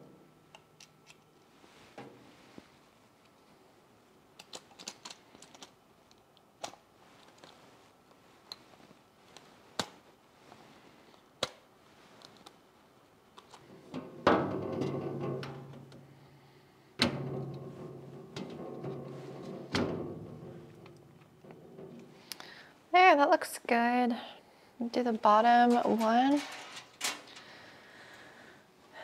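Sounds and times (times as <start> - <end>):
small parts clicking on acrylic shelf: 0.5 - 1.4, 4.4 - 7.6.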